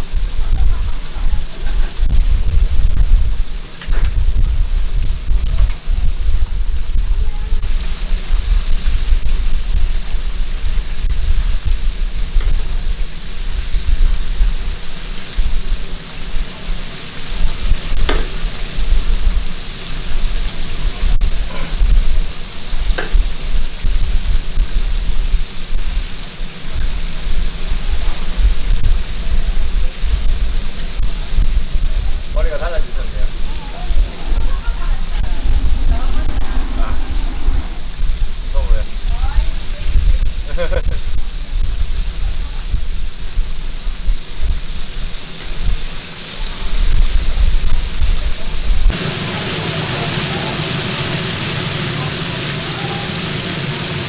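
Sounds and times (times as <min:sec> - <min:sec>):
low rumble: 0:00.0 - 0:14.8, 0:27.2 - 0:44.8
ribs sizzling in deep fryer: 0:00.0 - 0:54.0.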